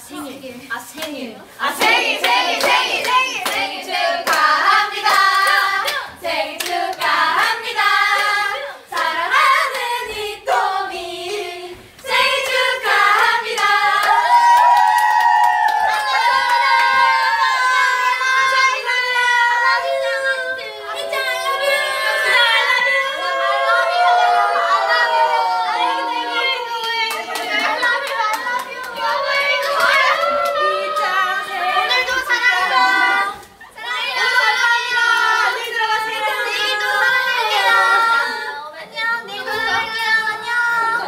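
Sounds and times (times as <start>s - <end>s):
women singing unaccompanied: 0.0s - 14.5s, 16.2s - 24.2s, 26.4s - 41.0s.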